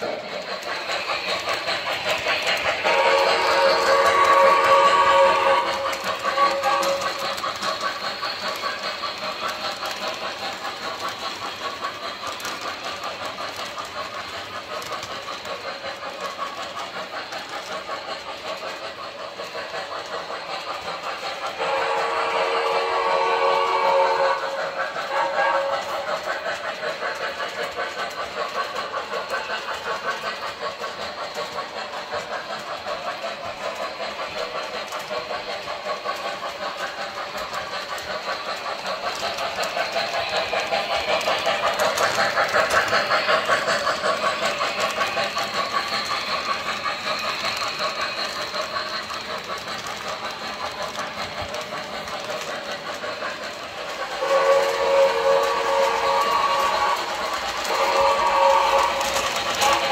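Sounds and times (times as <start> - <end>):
model train steam chuff: 0.0 - 59.9
wheels rolling on track: 0.0 - 59.9
train whistle blowing: 2.7 - 7.3, 21.5 - 26.1, 54.2 - 59.9.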